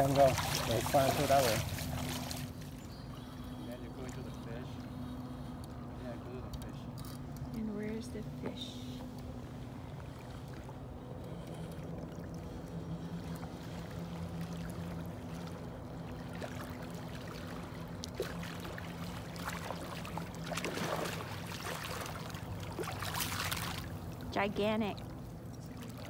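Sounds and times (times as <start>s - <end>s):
fish splashing in water: 0.0s - 2.7s, 14.4s - 24.2s
steady low hum: 0.0s - 26.0s.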